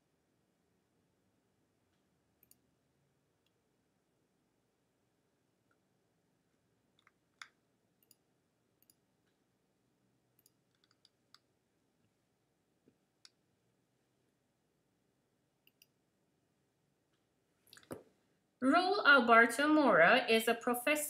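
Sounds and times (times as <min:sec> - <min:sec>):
small sharp clicks: 0:02.4 - 0:02.6, 0:08.8 - 0:09.4, 0:10.4 - 0:11.5, 0:15.6 - 0:16.0.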